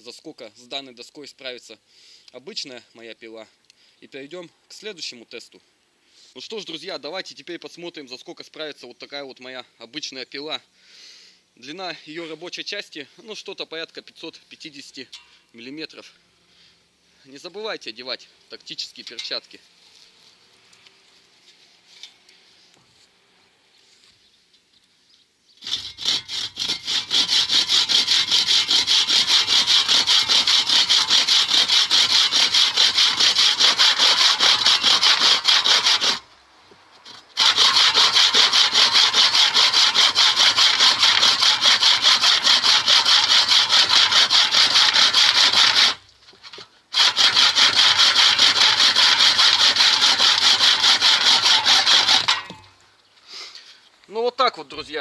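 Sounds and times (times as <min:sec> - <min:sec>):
hand saw cutting wood: 0:25.6 - 0:36.3, 0:37.0 - 0:52.7.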